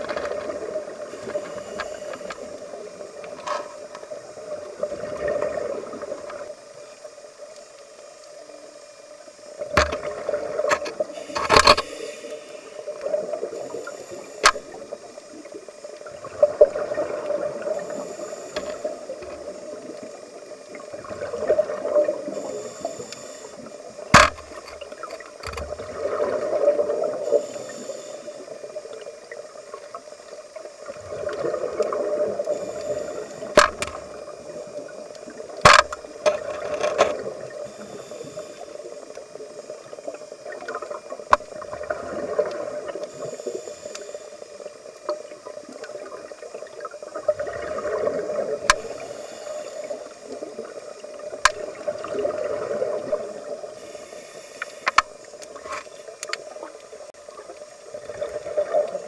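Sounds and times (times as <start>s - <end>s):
diver breathing through regulator: 1.1s - 2.6s, 11.0s - 14.6s, 27.2s - 28.5s, 37.5s - 38.9s, 48.8s - 50.4s, 53.7s - 55.2s
bubbles gurgling underwater: 4.4s - 6.5s, 14.7s - 22.6s, 25.7s - 27.4s, 30.8s - 37.7s, 39.8s - 43.4s, 45.3s - 49.0s, 50.0s - 53.7s, 56.4s - 59.0s.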